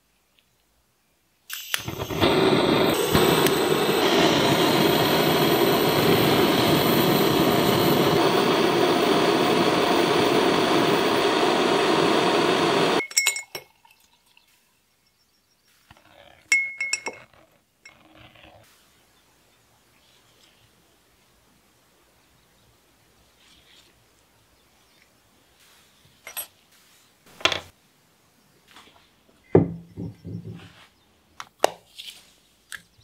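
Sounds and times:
blowtorch flame hissing: 1.5s - 13.0s
metal tongs clinking on glass jar: 13.0s - 13.8s, 16.5s - 18.0s, 26.3s - 26.5s.

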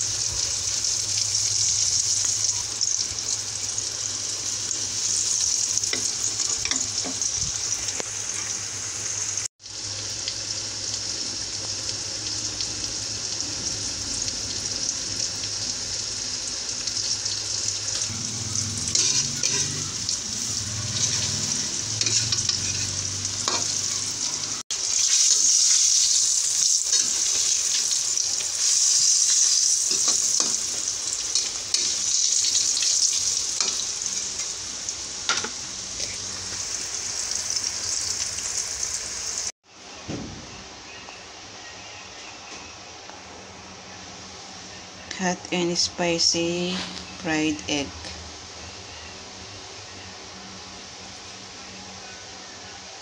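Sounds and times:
eggs deep-frying in hot oil: 0.0s - 39.6s.

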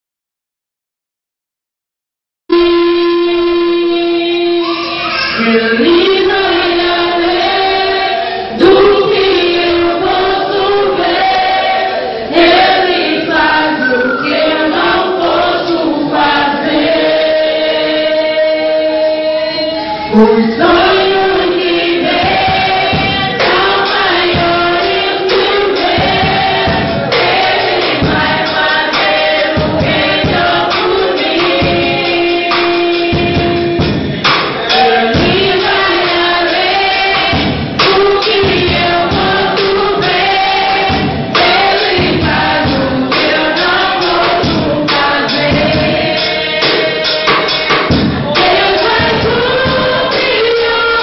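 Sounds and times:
girl singing through loudspeaker: 2.6s - 7.4s, 8.5s - 11.1s, 13.6s - 16.2s, 18.4s - 26.9s, 34.8s - 40.2s, 48.3s - 51.0s.

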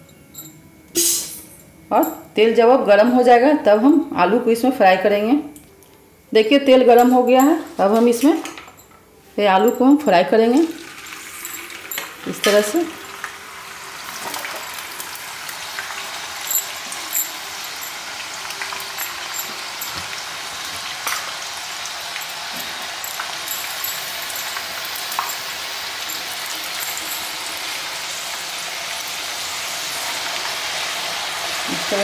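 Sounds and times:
potatoes sizzling in oil: 10.7s - 32.0s.

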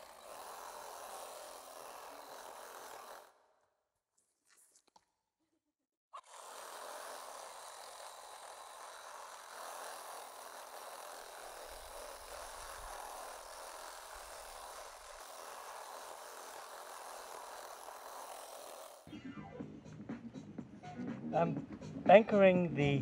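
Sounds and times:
cordless drill boring into salt: 0.0s - 3.4s, 6.2s - 19.1s.

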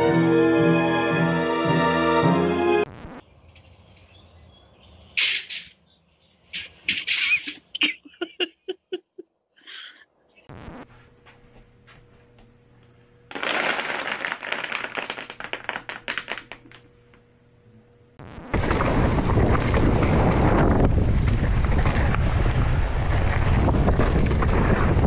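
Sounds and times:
geese calling: 6.5s - 7.9s.

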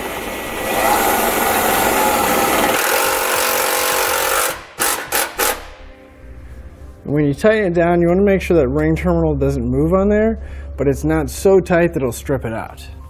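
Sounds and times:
cordless drill driving a screw: 0.6s - 5.8s.

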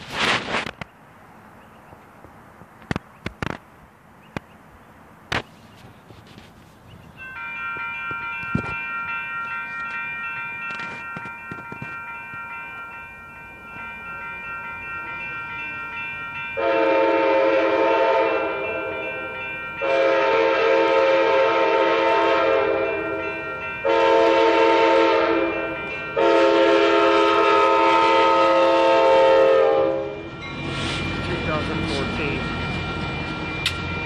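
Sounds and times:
railroad crossing bell ringing: 7.0s - 34.0s
locomotive horn blasts: 16.6s - 19.2s, 19.8s - 30.4s.

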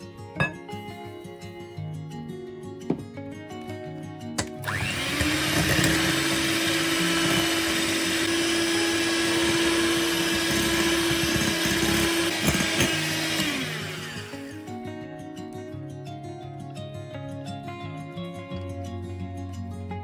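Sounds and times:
electric hand mixer whirring: 4.6s - 14.7s.

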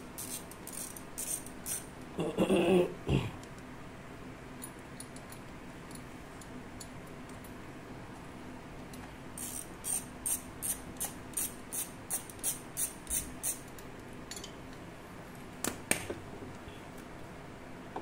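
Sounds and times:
hand ratchet clicking: 0.2s - 1.8s, 9.4s - 13.7s.

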